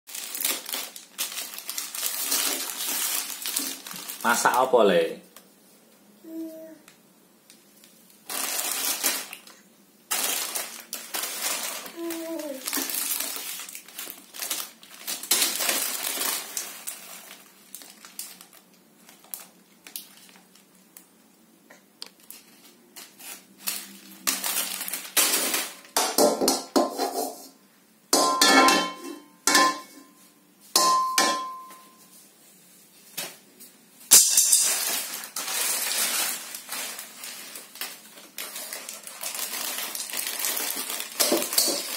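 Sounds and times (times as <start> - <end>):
plastic packets crinkling: 0.1 - 5.0, 7.8 - 21.2, 22.0 - 26.0, 34.4 - 41.9
wok and spatula clattering: 28.2 - 30.0, 30.8 - 31.7, 34.1 - 35.0, 41.2 - 41.9.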